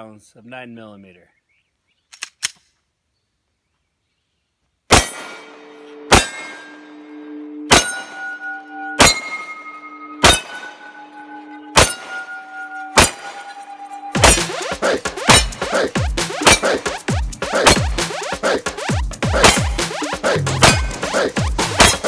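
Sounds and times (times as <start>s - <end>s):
pistol shots: 4.9s - 6.8s, 9.0s - 9.5s, 10.2s - 10.7s, 13.0s - 13.4s, 14.2s - 15.6s, 16.3s - 16.9s, 19.4s - 20.0s
steel target ringing: 4.9s - 15.7s, 16.4s - 17.0s, 19.4s - 21.0s, 21.7s - 22.0s.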